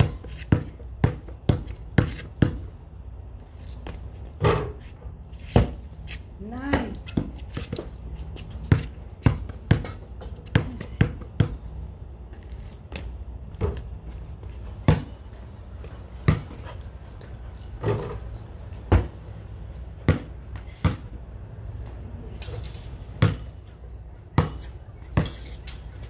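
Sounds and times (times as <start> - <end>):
ball hitting hoop: 0.0 - 2.7, 8.6 - 11.6, 14.9 - 15.2, 18.9 - 19.2, 23.2 - 23.5
basketball dribbling on concrete: 0.0 - 22.0, 23.1 - 25.6.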